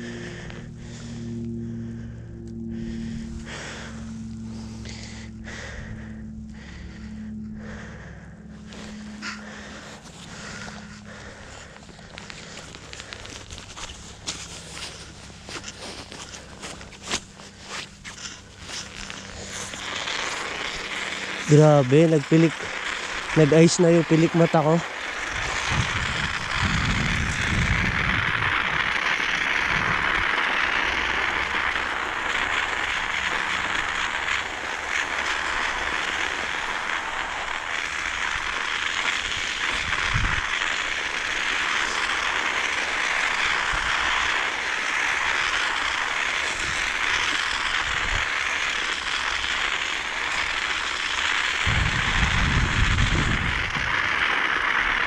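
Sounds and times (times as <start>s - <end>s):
bicycle ride rushing noise: 0.0s - 55.0s
wind buffeting microphone: 25.3s - 28.9s, 39.8s - 40.5s, 51.6s - 54.0s.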